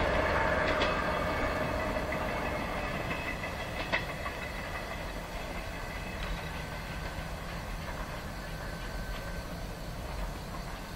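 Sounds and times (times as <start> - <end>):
distant train rumble: 0.0 - 10.9.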